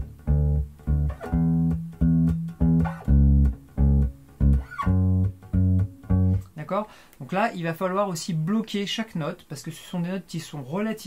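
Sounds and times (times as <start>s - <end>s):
electric bass fingerstyle notes: 0.0s - 6.6s.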